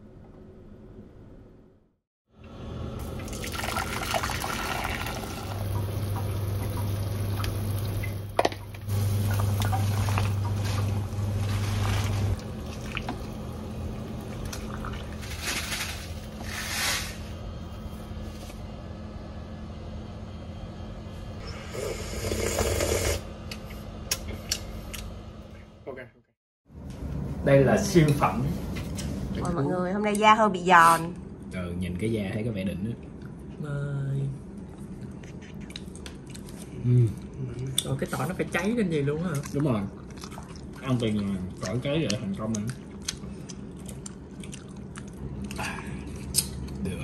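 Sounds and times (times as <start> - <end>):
steady low hum: 0.0 - 47.0
water bubbling in a pot: 3.0 - 15.2.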